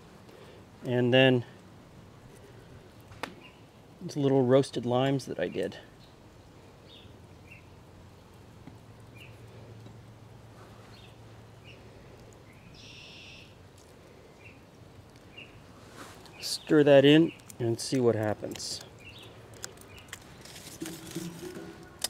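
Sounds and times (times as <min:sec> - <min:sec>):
birds chirping: 0:03.2 - 0:04.2, 0:05.2 - 0:08.4, 0:09.0 - 0:09.8, 0:10.7 - 0:20.7.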